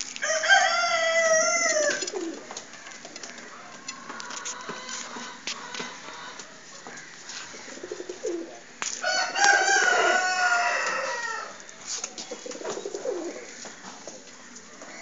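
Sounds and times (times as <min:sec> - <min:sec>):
rooster crowing: 0:00.2 - 0:02.0, 0:09.0 - 0:11.6
pigeons cooing: 0:01.2 - 0:08.8, 0:09.4 - 0:15.0.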